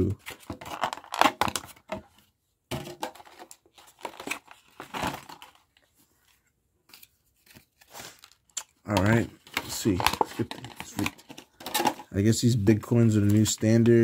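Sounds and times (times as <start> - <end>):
plastic packaging crinkling: 7.5 - 12.2.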